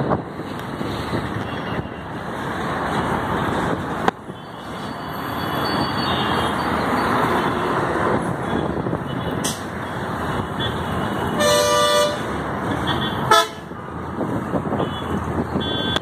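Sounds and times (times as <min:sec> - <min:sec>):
road traffic driving past: 0:00.0 - 0:16.0.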